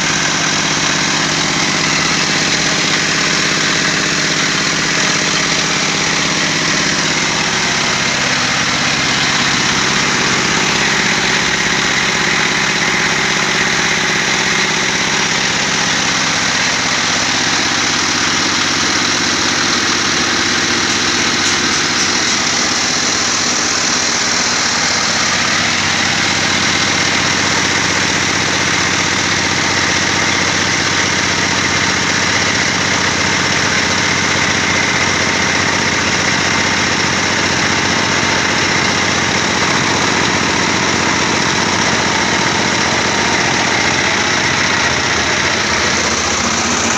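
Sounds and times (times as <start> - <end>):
belt-driven machine drone: 0.0 - 46.9.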